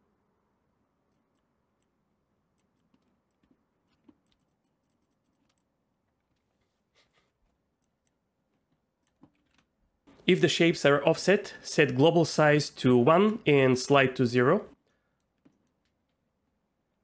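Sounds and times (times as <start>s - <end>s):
computer mouse and keyboard clicks: 1.1s - 6.5s, 7.4s - 10.2s.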